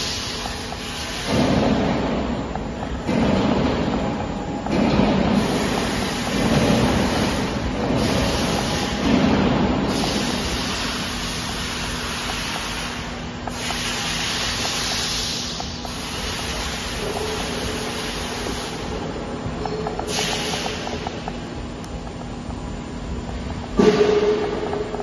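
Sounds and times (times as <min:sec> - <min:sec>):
rushing hissing noise: 0:05.3 - 0:19.0.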